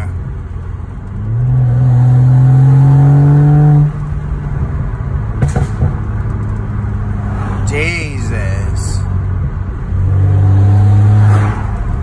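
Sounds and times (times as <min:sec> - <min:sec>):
car engine accelerating: 0:00.0 - 0:07.8, 0:09.1 - 0:12.0
sharp exhaust pops: 0:05.3 - 0:06.6.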